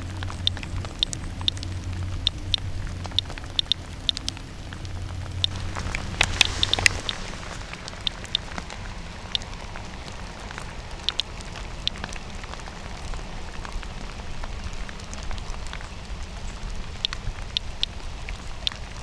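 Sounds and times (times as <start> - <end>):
geiger counter clicking: 0.0 - 7.2, 8.0 - 8.5, 9.3 - 9.5, 11.0 - 12.2, 17.0 - 17.9
rain pattering: 0.0 - 19.0.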